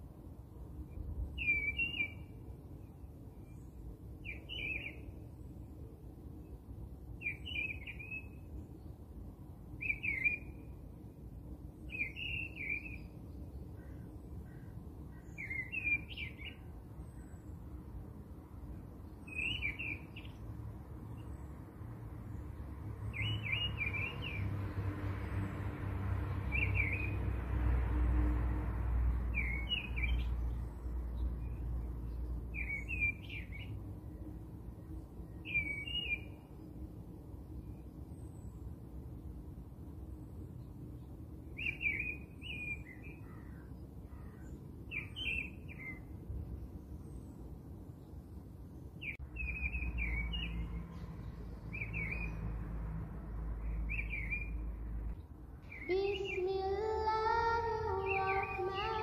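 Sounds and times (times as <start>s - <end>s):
bird chirps: 1.4s - 5.2s, 7.2s - 8.8s, 9.8s - 10.7s, 11.8s - 17.6s, 19.0s - 20.4s, 23.0s - 24.5s, 26.5s - 27.2s, 29.3s - 33.8s, 35.3s - 36.8s, 40.6s - 46.1s, 49.0s - 52.5s, 53.6s - 59.0s.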